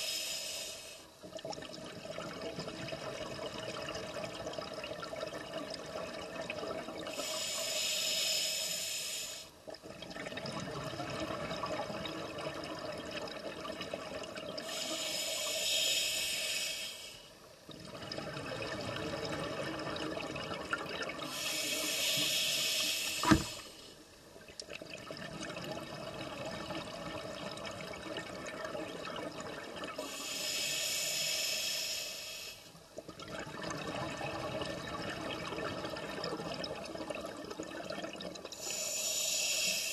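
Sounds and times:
regulator inhalations: 0.0s - 1.1s, 7.1s - 9.6s, 14.6s - 17.4s, 21.3s - 23.7s, 30.1s - 32.7s, 38.6s - 39.9s
exhaled bubbles underwater: 9.7s - 15.0s, 17.7s - 22.4s, 32.9s - 38.8s.

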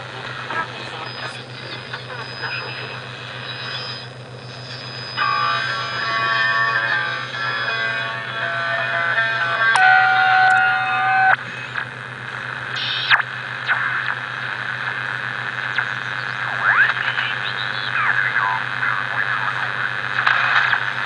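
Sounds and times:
low steady hum: 0.0s - 21.0s
radio hiss and static: 0.0s - 21.0s
steady radio tones: 0.0s - 21.0s
gliding radio whistles: 0.8s - 11.4s.

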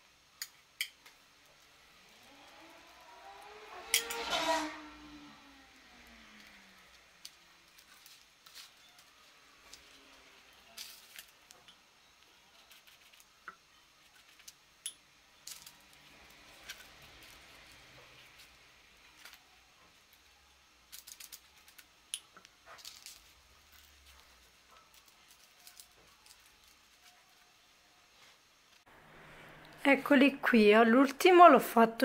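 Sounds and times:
paper and pastry crinkling: 7.6s - 14.6s, 22.6s - 28.4s.

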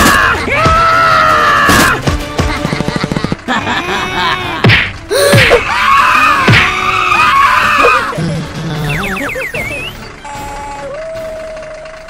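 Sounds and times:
background music: 0.0s - 11.7s
squeaky gliding tones: 7.7s - 12.0s.

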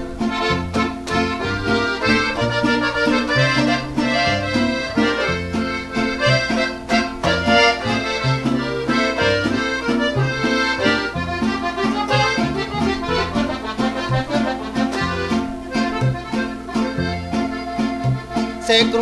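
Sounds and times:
accordion melody: 0.0s - 19.0s
bass line on steady beat: 0.0s - 19.0s.

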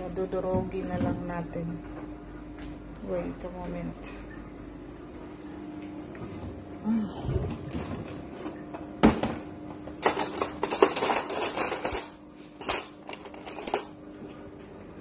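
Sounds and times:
cutlery clattering in drawer: 10.0s - 14.0s.

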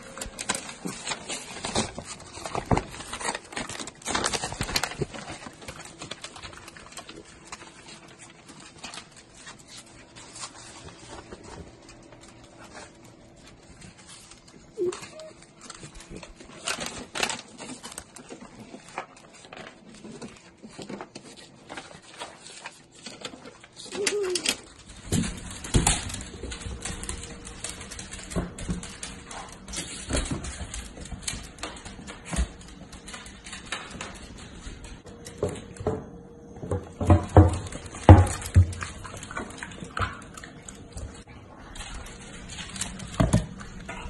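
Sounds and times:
dogs whining: 14.5s - 16.2s.

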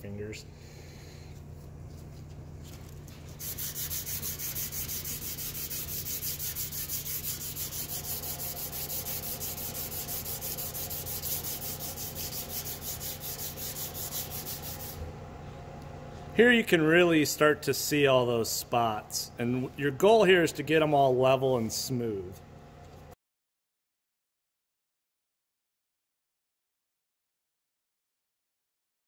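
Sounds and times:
low steady hum: 0.0s - 23.2s
sandpaper rubbing on metal: 3.1s - 15.0s.

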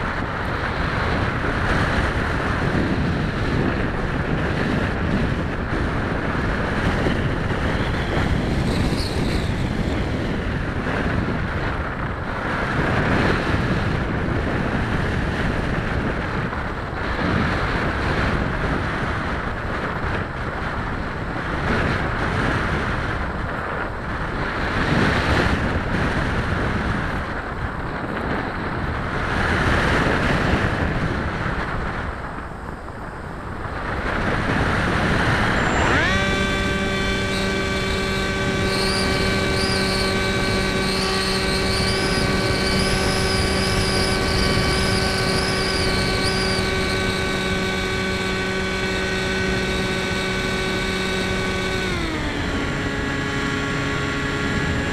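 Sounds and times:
wind rushing over microphone: 0.0s - 54.9s
faint rising motor whine: 34.2s - 54.9s.

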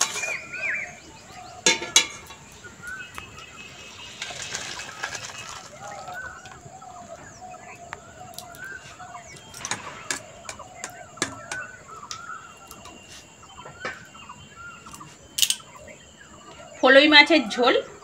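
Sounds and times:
kitchen utensils clinking: 0.0s - 0.6s, 1.6s - 2.5s, 15.4s - 15.7s.

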